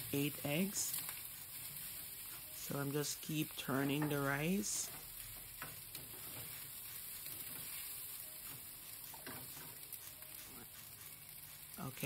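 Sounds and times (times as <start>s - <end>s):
rice sizzling in a skillet: 0.0s - 12.0s
spatula scraping pan: 3.6s - 11.8s.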